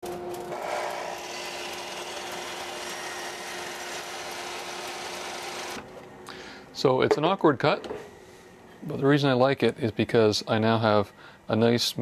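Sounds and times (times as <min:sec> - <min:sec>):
miter saw motor whine: 0:00.5 - 0:05.8
saw blade cutting wood: 0:00.5 - 0:05.8.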